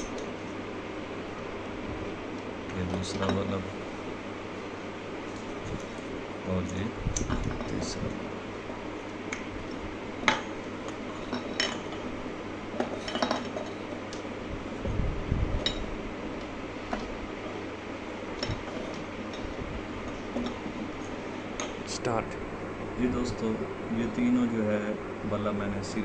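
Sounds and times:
glass light bulbs clinking: 12.8 - 14.0.

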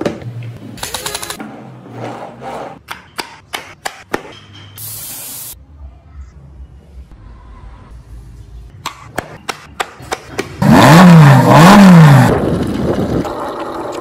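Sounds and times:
car engine revving: 10.6 - 12.8.

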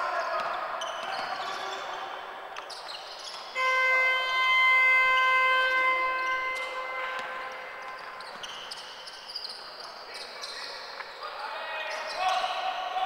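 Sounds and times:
gym hall hum: 0.0 - 13.0
arena horn blast: 3.6 - 8.2.

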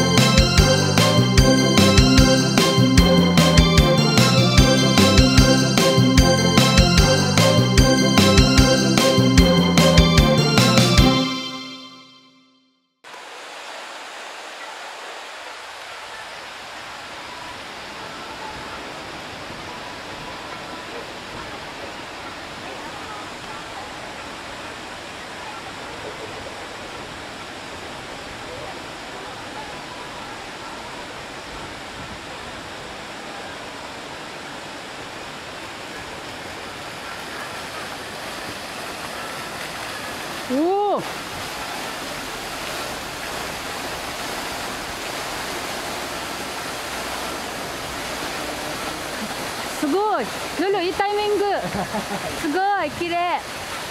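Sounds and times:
fountain water splashing: 0.0 - 11.3, 13.1 - 53.9
outdoor rushing hiss: 13.1 - 18.2, 34.4 - 53.9.

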